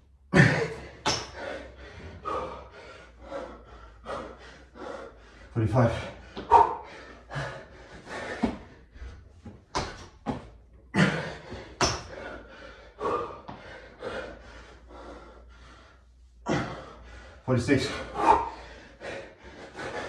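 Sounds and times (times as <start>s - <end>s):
hard exhaled breaths: 0.4s - 9.9s, 10.9s - 20.0s
thuds and slaps on tiled floor: 1.0s - 1.4s, 9.7s - 10.6s, 11.8s - 12.2s.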